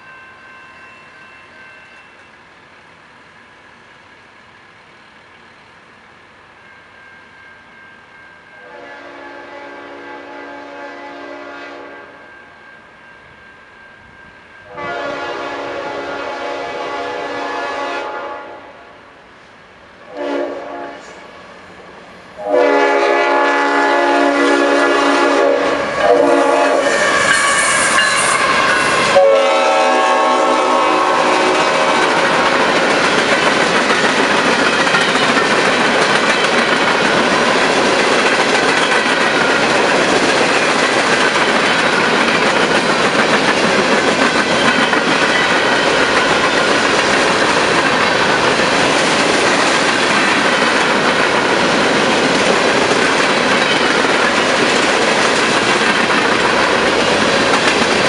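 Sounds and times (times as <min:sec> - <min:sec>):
locomotive horn blasts: 0:08.6 - 0:12.3, 0:14.6 - 0:18.9, 0:20.1 - 0:21.2, 0:22.4 - 0:32.2.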